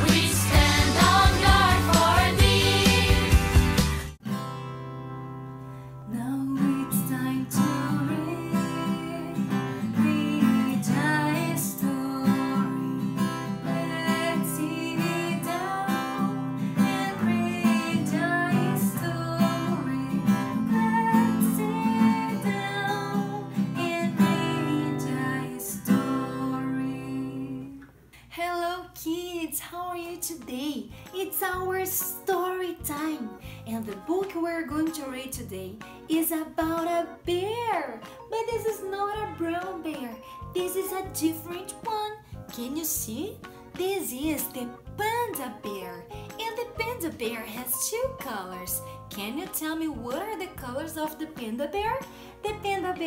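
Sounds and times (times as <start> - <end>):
woman singing: 0.0 - 3.4, 6.1 - 53.0
strummed acoustic guitar: 0.0 - 6.0, 6.6 - 27.6.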